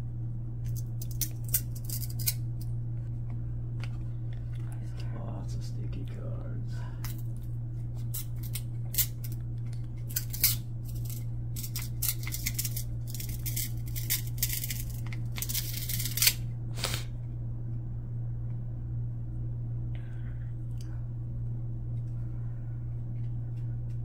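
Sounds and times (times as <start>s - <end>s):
steady low hum: 0.0s - 24.0s
cards flicking and rustling: 0.7s - 2.7s, 7.1s - 17.1s.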